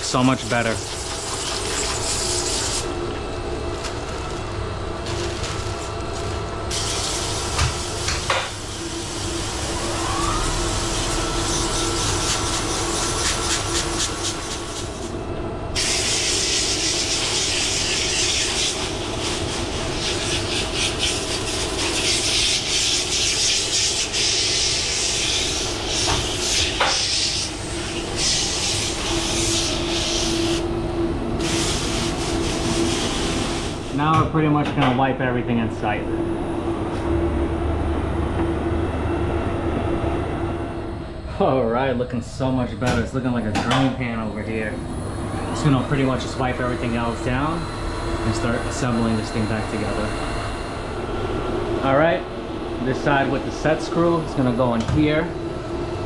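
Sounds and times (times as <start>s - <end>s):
pump humming: 0.0s - 23.2s.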